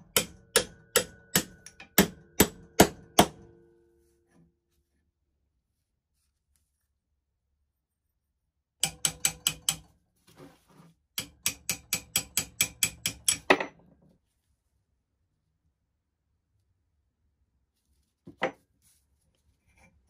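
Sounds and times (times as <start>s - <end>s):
hammer tapping metal punch: 0.0s - 3.5s, 8.8s - 9.9s, 11.2s - 13.8s
quiet scuffle: 5.7s - 7.0s, 10.2s - 11.0s, 17.7s - 19.9s.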